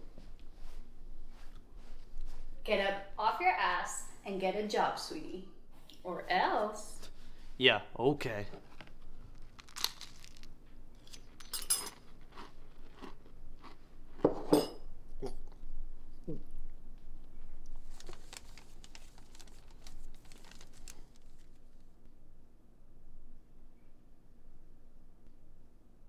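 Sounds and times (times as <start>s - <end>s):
paper crinkling: 8.5s - 10.5s, 17.8s - 21.9s
crunchy chewing: 8.6s - 14.2s
spoon clinking in a bowl: 11.4s - 12.0s.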